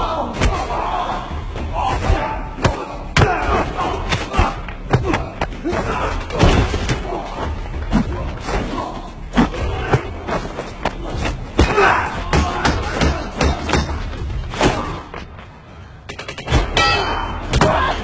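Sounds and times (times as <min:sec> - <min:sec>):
grunts and shouts: 0:00.0 - 0:15.2
punches and body impacts: 0:01.8 - 0:08.7, 0:09.3 - 0:15.3.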